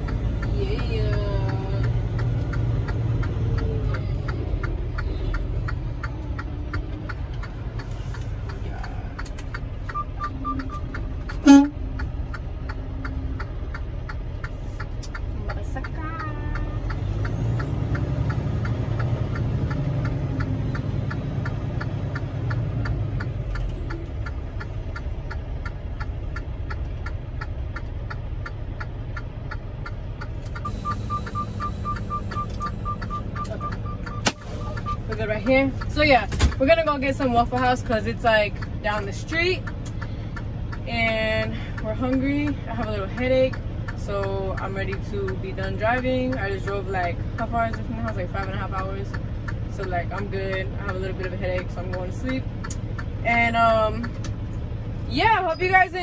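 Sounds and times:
diesel truck engine running: 0:00.0 - 0:56.0
fast regular ticking: 0:00.0 - 0:56.0
high beeps: 0:09.9 - 0:11.7, 0:30.6 - 0:35.1.

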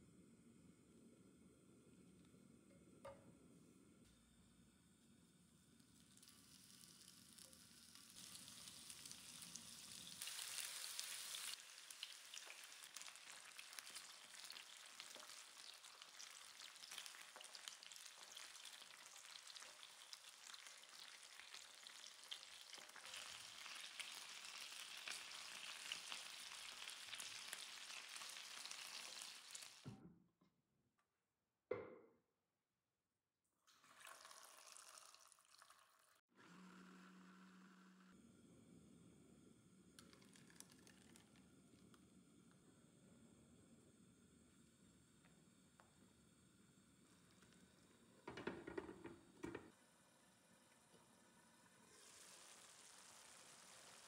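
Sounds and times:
meat sizzling in a pan: 0:05.5 - 0:29.8, 0:51.3 - 0:54.0.

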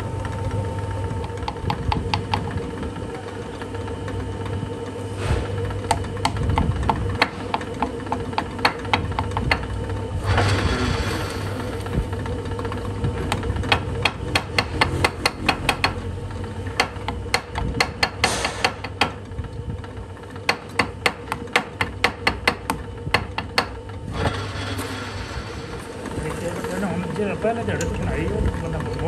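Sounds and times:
hammer knocking on steel: 0:13.7 - 0:16.0.

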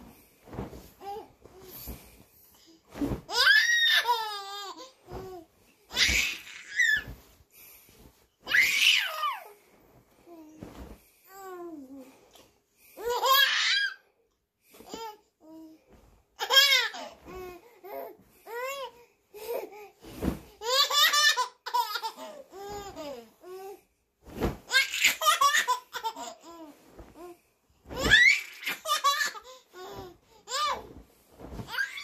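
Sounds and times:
baby laughing: 0:24.7 - 0:26.6, 0:28.1 - 0:29.6.

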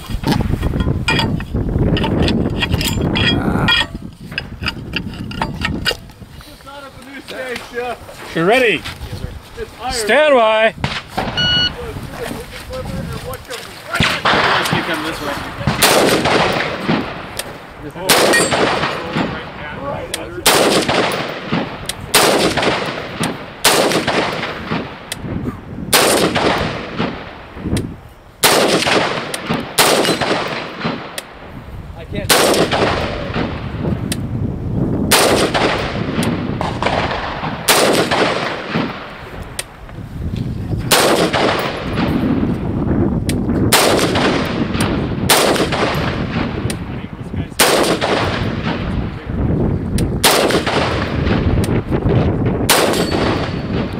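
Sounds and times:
rifle shots with echo: 0:10.0 - 0:11.9, 0:13.8 - 0:25.2, 0:25.9 - 0:27.6, 0:28.4 - 0:31.4, 0:32.2 - 0:33.8, 0:35.1 - 0:39.3, 0:40.9 - 0:42.4, 0:43.7 - 0:49.3, 0:50.2 - 0:53.9.

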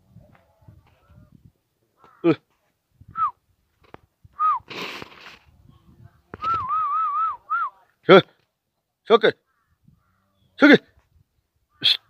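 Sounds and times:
person whistling: 0:04.4 - 0:04.7, 0:06.4 - 0:07.7
rustling: 0:04.7 - 0:05.6.

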